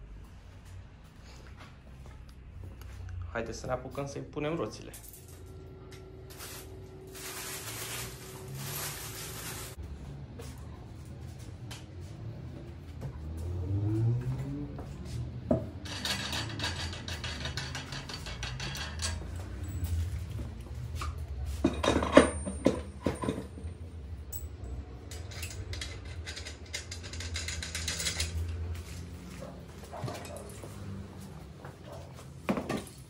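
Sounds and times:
metal clinking and knocking: 15.6s - 20.2s, 21.6s - 28.7s.

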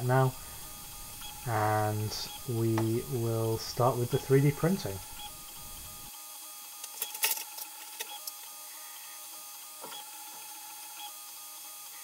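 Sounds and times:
stepper motors whining: 0.0s - 6.1s.

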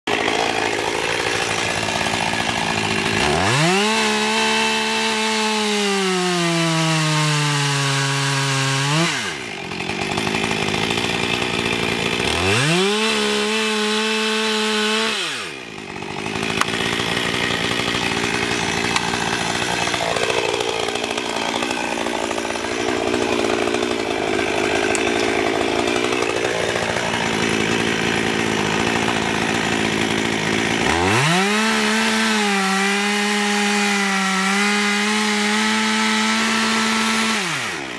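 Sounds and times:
chainsaw cutting wood: 0.0s - 37.9s.

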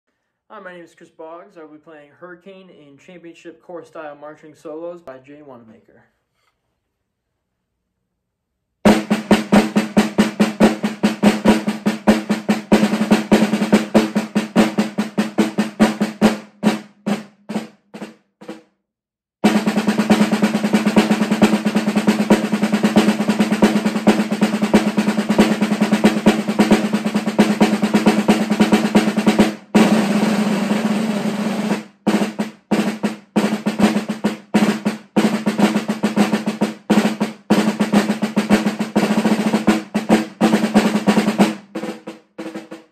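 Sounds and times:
marching snare drum: 8.8s - 18.7s, 19.4s - 42.9s.

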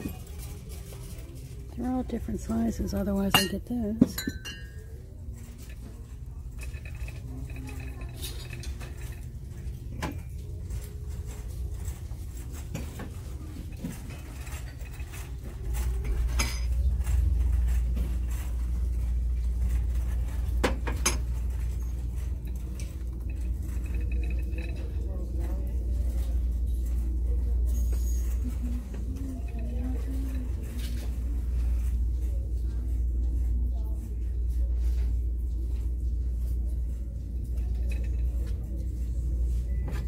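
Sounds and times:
voices: 0.0s - 20.6s, 21.2s - 40.0s
faint background music: 0.0s - 40.0s
ceramic cup clinking on metal shelf: 3.3s - 4.9s.

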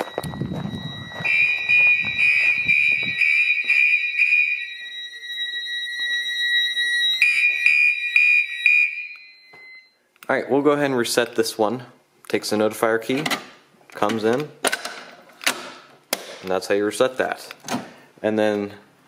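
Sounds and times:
fire alarm pulsing: 0.0s - 10.0s
faint steady high alarm tone: 0.0s - 10.1s.

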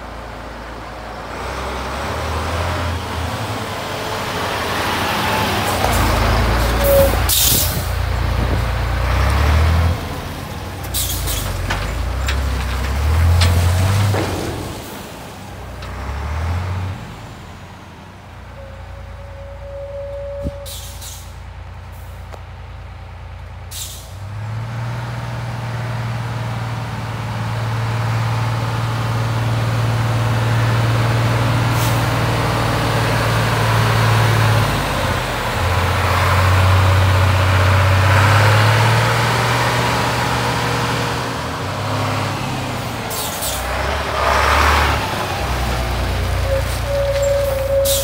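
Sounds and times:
diesel truck engine passing: 0.0s - 48.0s
air brake hiss: 20.5s - 21.4s, 23.7s - 24.2s, 43.1s - 43.6s, 47.5s - 48.0s.

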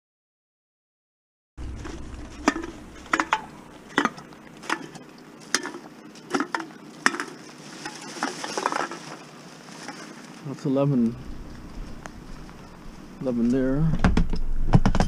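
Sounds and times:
bottles and cans clinking: 1.8s - 10.1s.

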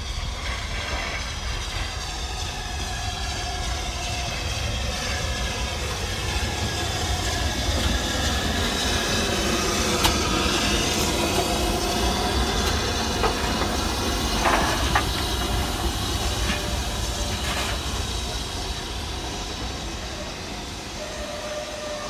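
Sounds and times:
steam train rumbling on rails: 0.0s - 22.0s.

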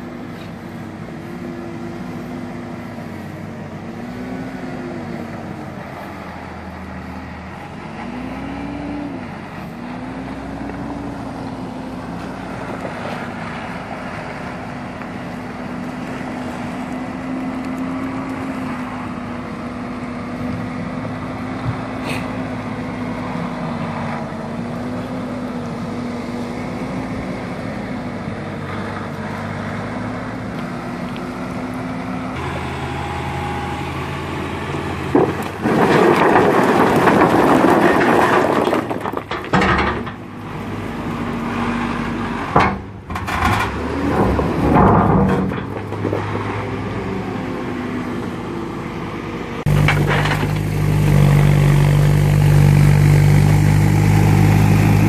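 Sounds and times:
deep crane engine: 0.0s - 55.0s
diesel engine running: 0.0s - 55.0s
boulders clattering into water: 35.1s - 40.2s.

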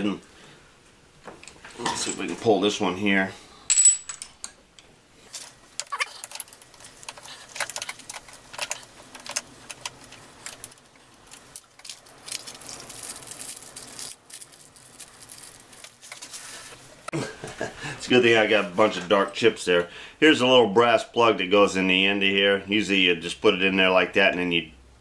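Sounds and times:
steel tools clinking: 3.7s - 4.6s.

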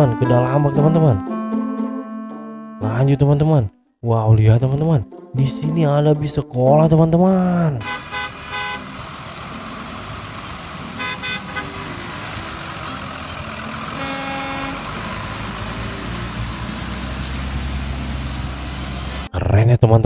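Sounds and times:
short horn toots: 7.8s - 8.9s, 10.6s - 11.9s, 13.9s - 14.9s
bus engines running: 7.8s - 19.3s
tyres hissing on wet road: 7.8s - 19.3s.

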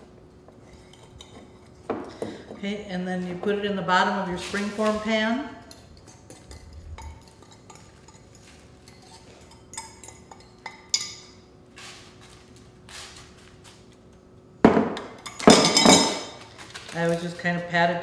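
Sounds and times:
fork scraping glass bowl: 5.7s - 11.1s.

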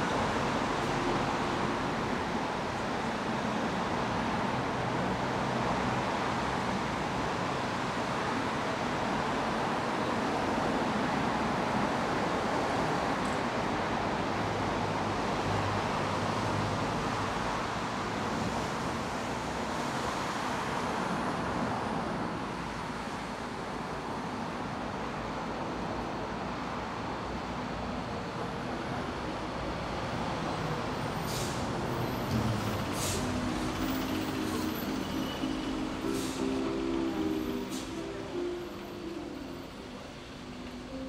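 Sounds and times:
road traffic rumble: 0.0s - 41.0s
short sharp high hisses: 32.3s - 36.7s.

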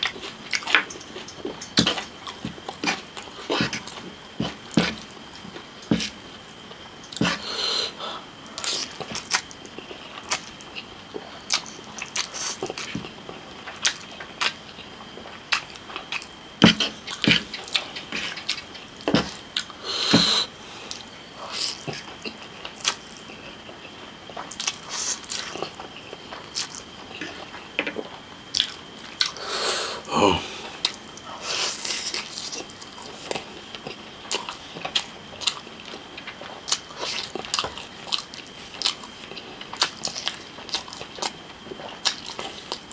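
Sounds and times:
wet chewing and lip smacks: 20.9s - 23.4s, 24.3s - 27.6s, 28.5s - 29.4s, 30.6s - 42.9s.

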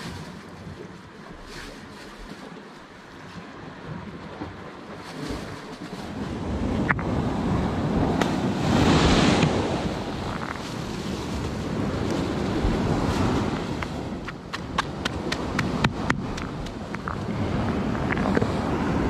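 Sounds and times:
surf washing on rocky shore: 0.0s - 19.0s
wind buffeting microphone: 3.8s - 19.0s.

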